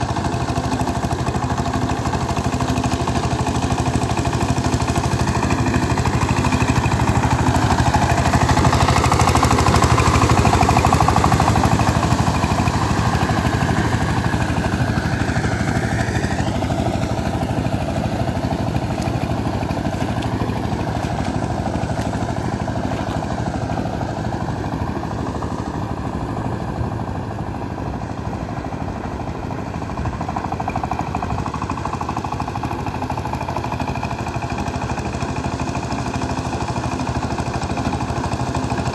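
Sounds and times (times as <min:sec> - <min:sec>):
power tiller engine running: 0:00.0 - 0:38.9.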